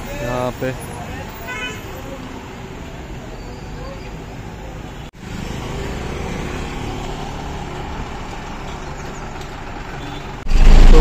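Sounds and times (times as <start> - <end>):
road hum: 0.0 - 11.0
vehicle engines running: 2.1 - 11.0.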